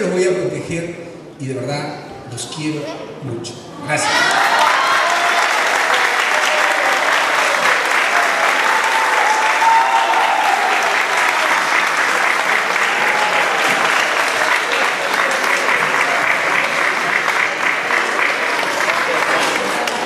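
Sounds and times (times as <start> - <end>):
audience applauding: 4.1 - 20.0.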